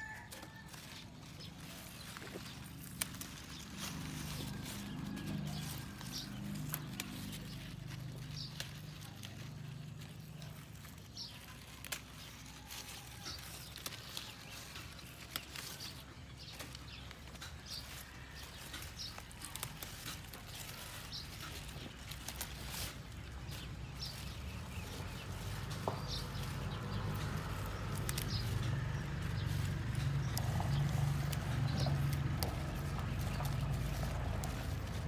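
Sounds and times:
lettuce leaves rustling and snapping: 0.0s - 35.0s.

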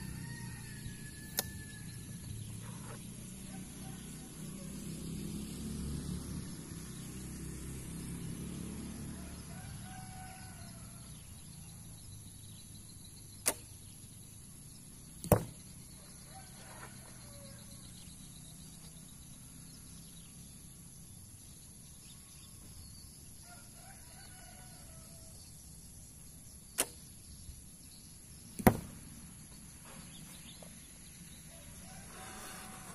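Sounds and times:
bowstring snap: 1.2s - 1.7s, 13.4s - 13.8s, 26.8s - 27.0s
arrow thud on target: 13.4s - 13.8s, 15.2s - 15.6s, 26.8s - 27.0s, 28.6s - 29.1s.

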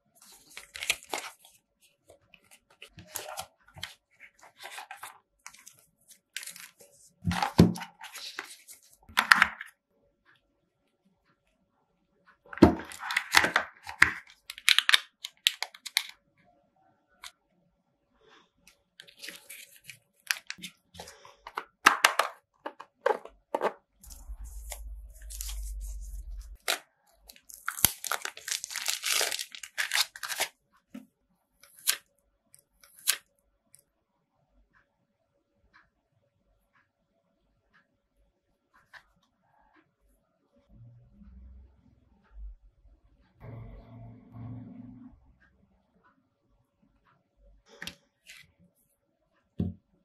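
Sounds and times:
cardboard and plastic rustling: 2.4s - 9.6s, 19.0s - 30.5s
low rumble: 24.0s - 26.7s, 43.4s - 45.4s.

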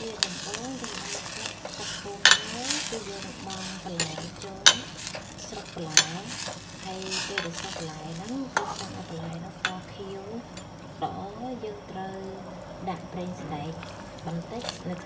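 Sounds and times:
utensils knocking against pot: 0.0s - 10.8s
vegetables sizzling in a pot: 0.0s - 15.0s.

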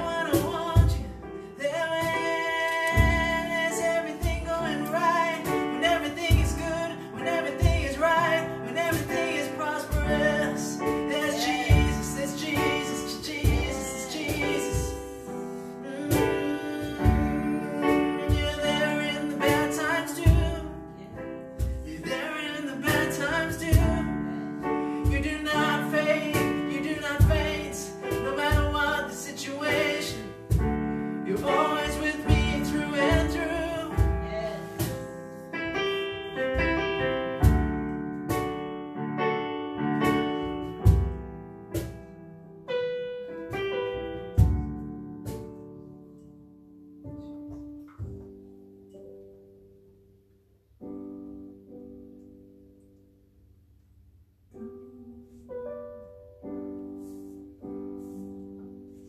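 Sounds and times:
men singing: 0.0s - 20.7s, 21.9s - 24.4s, 25.1s - 30.4s, 31.3s - 34.8s
electronic keyboard chords: 29.5s - 53.4s.

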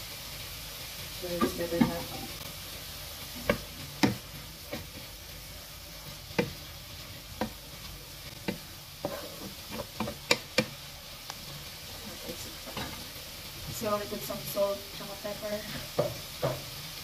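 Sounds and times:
vegetables sizzling in a frying pan: 0.0s - 17.0s
wooden spoon scraping a pan: 3.2s - 10.8s, 15.5s - 16.7s.

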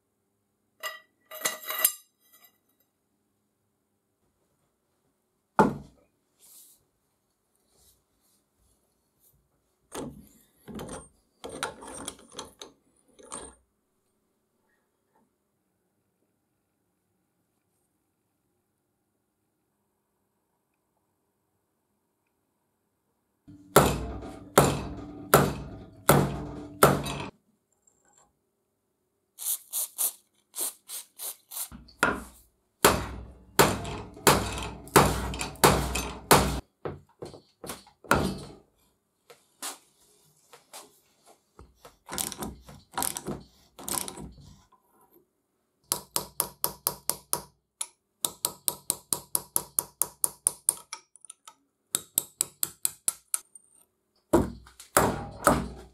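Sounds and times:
hammer striking steel: 23.5s - 27.3s, 32.8s - 36.6s, 55.0s - 55.8s
hammer tapping chisel: 45.9s - 53.6s.

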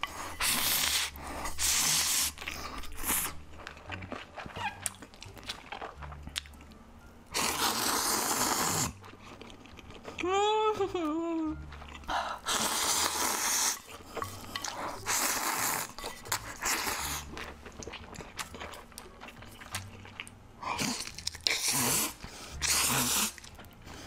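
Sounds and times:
person slurping noodles: 0.0s - 3.4s, 7.4s - 9.0s, 12.3s - 15.9s, 20.7s - 23.5s
chewing with wet clicks: 2.4s - 6.8s, 9.0s - 10.2s, 16.0s - 23.9s.

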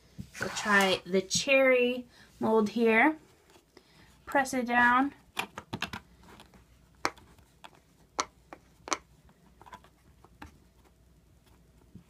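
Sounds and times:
fingers pressing modelling dough: 5.2s - 12.0s.

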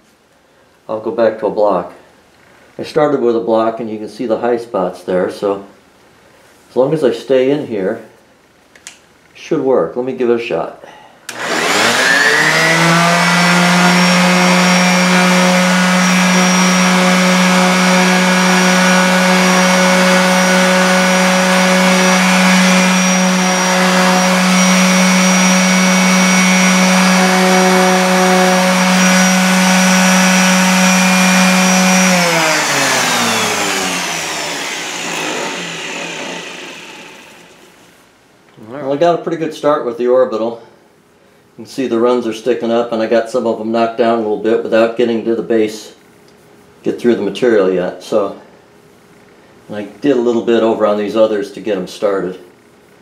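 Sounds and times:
orbital sander running: 11.3s - 37.8s.

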